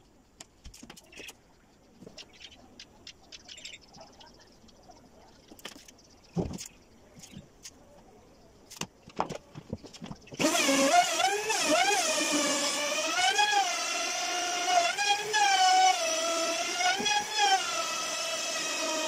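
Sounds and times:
router motor whining: 0:10.4 - 0:19.0.

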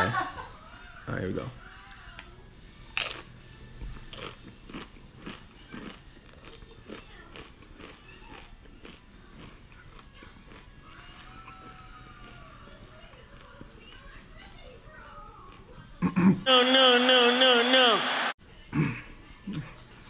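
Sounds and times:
crunching tortilla chip: 0:02.9 - 0:03.4, 0:04.0 - 0:12.5.

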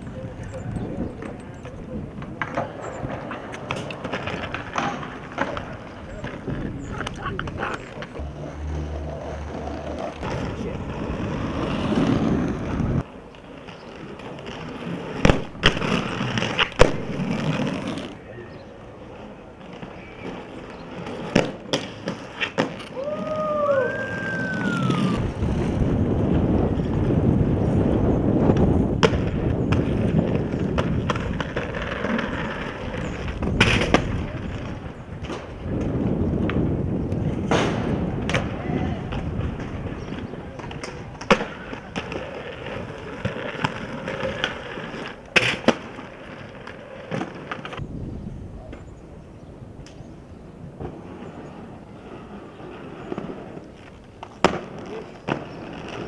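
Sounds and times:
skateboard clacks: 0:00.0 - 0:47.8, 0:50.8 - 0:56.0
skateboard wheels rolling on stone: 0:00.0 - 0:48.0, 0:48.6 - 0:56.0.

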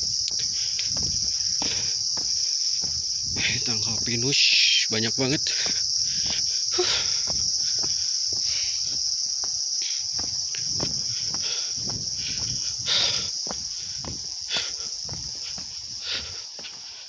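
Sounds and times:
footsteps on dirt path: 0:00.0 - 0:17.0
insects droning: 0:00.0 - 0:17.0.

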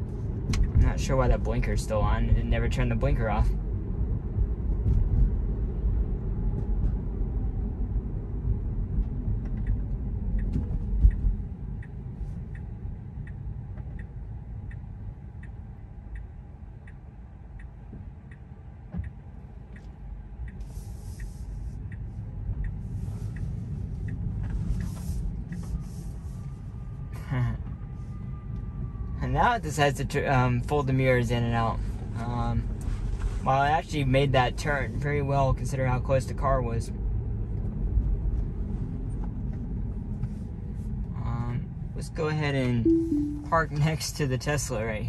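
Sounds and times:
road rumble inside car: 0:00.0 - 0:45.0
turn signal ticking: 0:00.2 - 0:02.8, 0:08.8 - 0:26.2.

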